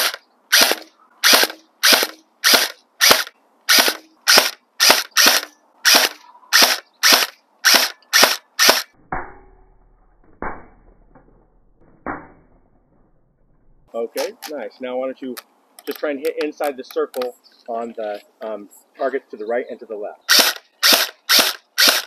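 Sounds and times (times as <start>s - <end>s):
airsoft rifle shots cracking: 0.0s - 8.9s, 20.3s - 22.0s
low hum: 9.0s - 13.9s.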